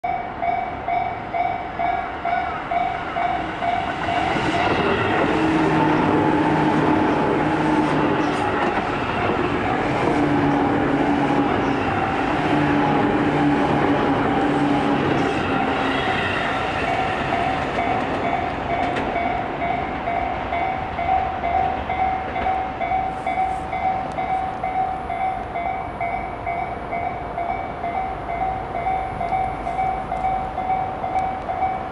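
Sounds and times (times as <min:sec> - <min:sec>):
electric train passing: 0:00.1 - 0:31.9
train wheels clacking: 0:02.7 - 0:13.0, 0:13.6 - 0:24.8.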